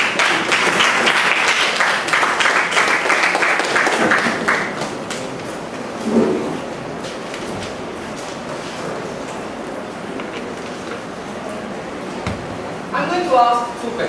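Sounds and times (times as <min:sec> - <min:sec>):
audience applause: 0:00.0 - 0:05.3.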